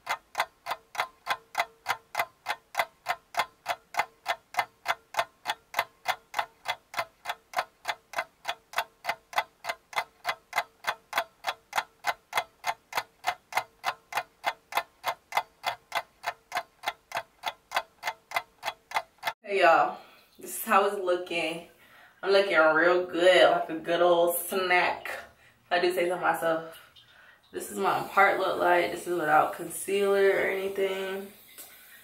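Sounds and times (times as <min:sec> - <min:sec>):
clock-like ticking: 0:00.0 - 0:19.4, 0:26.4 - 0:32.0.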